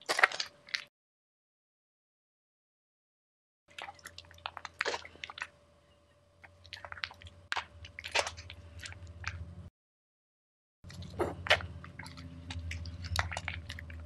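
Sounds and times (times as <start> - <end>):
steady low hum: 3.7 - 9.7, 10.8 - 14.0.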